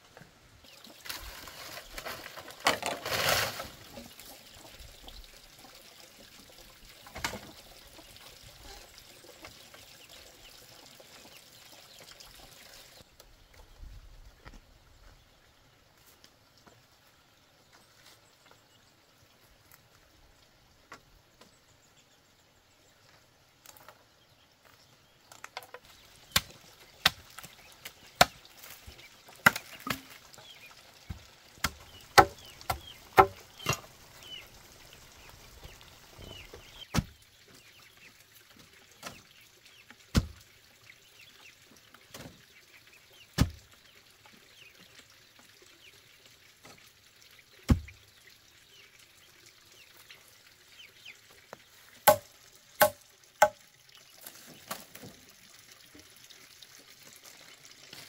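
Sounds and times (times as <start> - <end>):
blade chopping bamboo: 31.6 - 33.8, 52.0 - 53.6.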